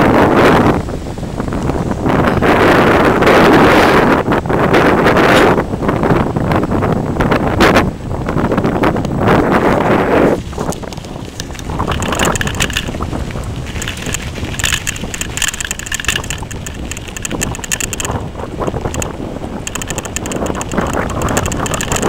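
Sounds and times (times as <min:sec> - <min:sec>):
wind buffeting microphone: 0:00.0 - 0:22.0
bicycle tyre noise: 0:08.3 - 0:22.0
bike rattling clicks: 0:10.4 - 0:22.0.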